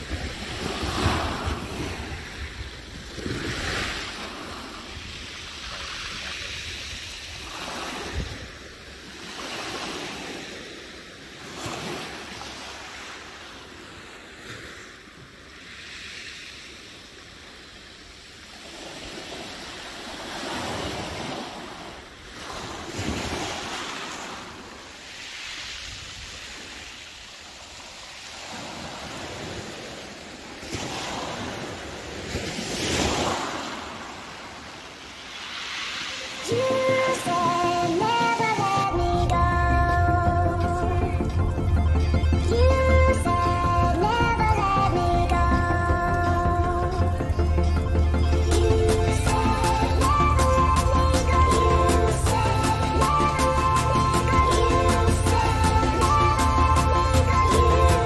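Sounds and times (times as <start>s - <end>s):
wind rumbling on microphone: 0.0s - 9.0s
sea waves washing onto shore: 0.0s - 58.0s.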